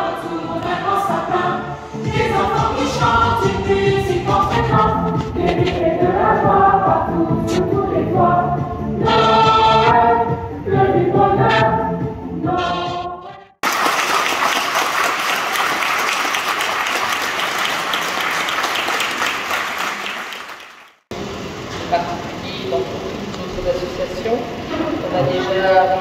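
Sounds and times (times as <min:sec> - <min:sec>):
choir singing: 0:00.0 - 0:13.6
audience applauding: 0:13.6 - 0:21.0.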